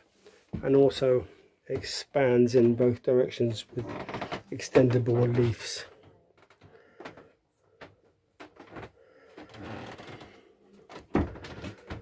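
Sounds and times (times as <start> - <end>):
soft knocks and bumps: 10.9 - 12.0.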